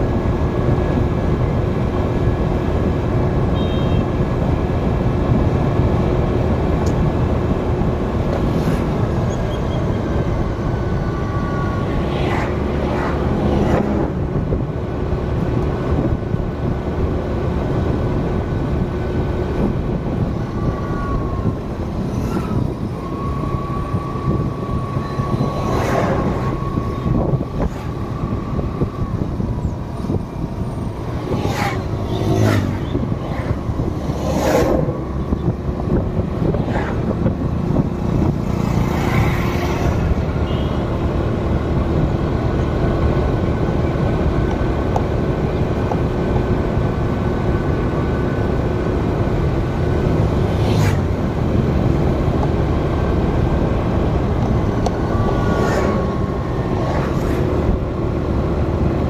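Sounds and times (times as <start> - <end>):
vehicle road and engine rumble: 0.0 - 59.0
rushes of noise: 8.1 - 16.4, 17.5 - 42.1, 48.0 - 59.0.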